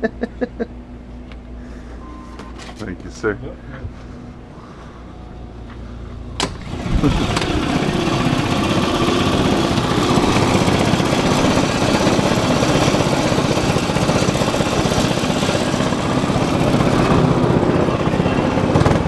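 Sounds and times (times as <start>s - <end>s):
go-kart engine idling: 6.4s - 19.0s.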